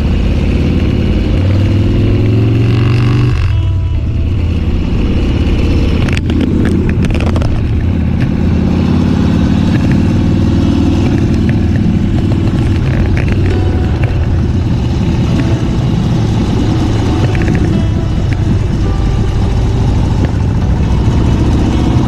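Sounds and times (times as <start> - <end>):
motorcycle engine running: 0.0 - 22.0
sharp knocks and clicks: 6.0 - 8.5, 9.6 - 10.3, 10.9 - 21.0.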